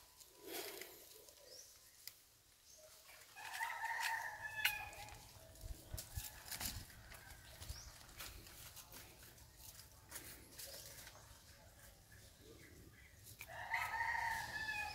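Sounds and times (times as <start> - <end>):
dry leaves rustling and crackling: 2.8 - 12.0, 13.3 - 14.9.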